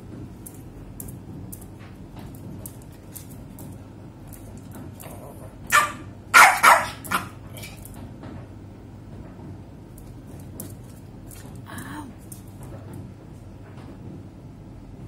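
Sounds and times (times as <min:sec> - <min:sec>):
small dog barking: 0:05.7 - 0:07.4.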